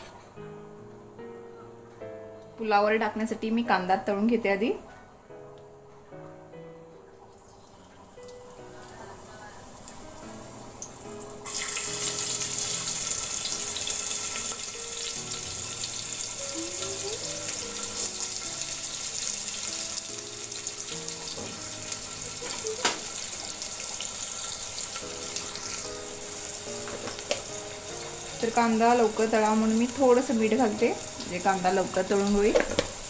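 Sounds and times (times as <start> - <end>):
onions sizzling in hot oil: 7.6 - 33.0.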